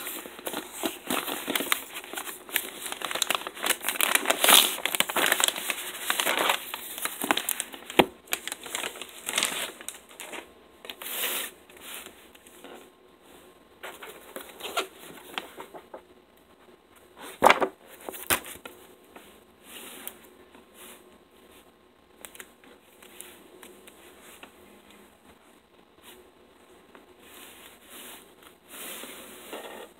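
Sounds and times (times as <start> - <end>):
plastic bag crinkling: 0.0 - 11.0
book pages rustling: 0.0 - 12.8, 13.8 - 16.1, 17.2 - 24.6.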